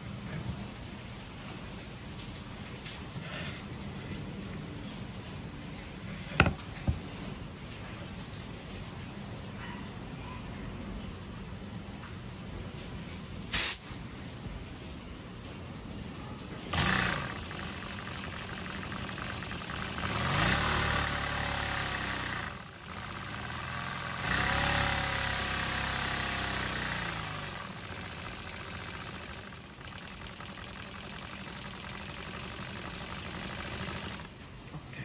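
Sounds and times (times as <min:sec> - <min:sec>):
model steam engine running: 0:16.7 - 0:34.3.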